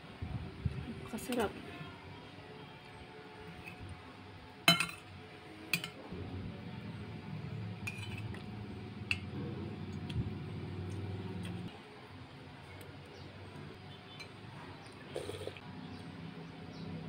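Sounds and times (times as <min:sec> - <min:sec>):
cutlery clinking on plate: 0:04.7 - 0:05.0
low steady rumble: 0:06.1 - 0:11.7.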